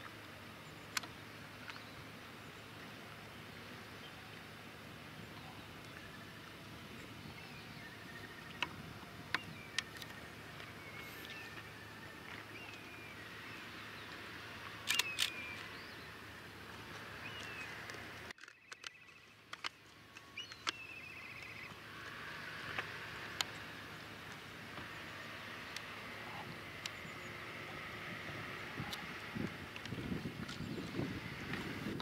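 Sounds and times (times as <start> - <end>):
low steady rumble: 0.0 - 32.0
sharp clicks: 14.8 - 15.9, 17.3 - 21.8.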